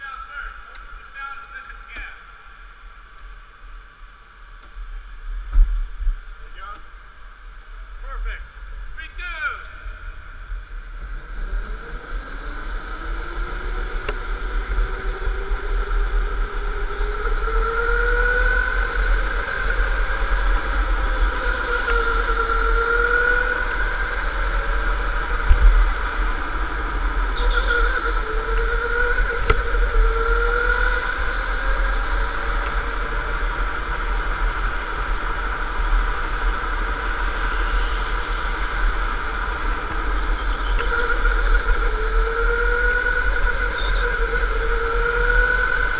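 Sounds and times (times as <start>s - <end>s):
steady low rumble: 0.0s - 18.0s
electric go-kart motor whining: 10.4s - 45.9s.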